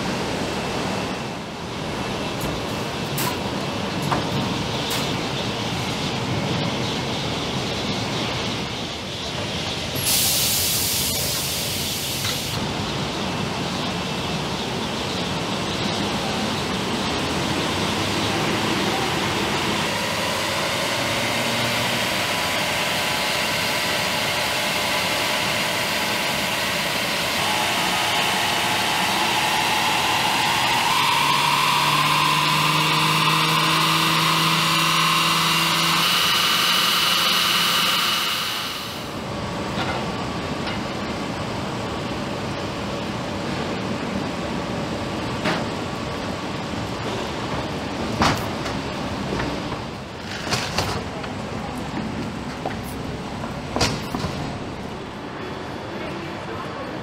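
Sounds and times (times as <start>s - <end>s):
engine and rollers whirring: 12.2s - 57.0s
rising whine: 17.0s - 39.2s.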